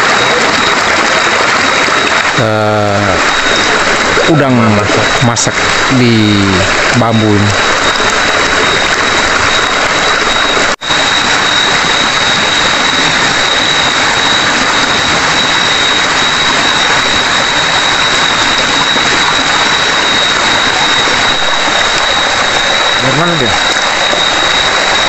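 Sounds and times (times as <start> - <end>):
stream rushing: 0.0 - 25.0
night insects whining: 2.3 - 25.0.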